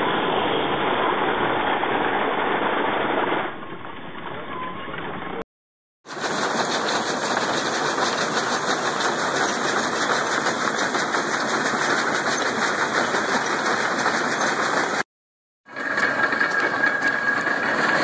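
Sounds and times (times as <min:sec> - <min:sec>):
hay baler clattering: 0:06.1 - 0:15.0, 0:15.7 - 0:18.0.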